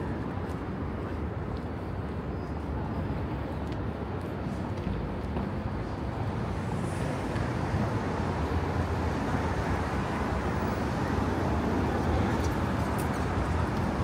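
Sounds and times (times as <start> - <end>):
cars passing: 4.4 - 14.0.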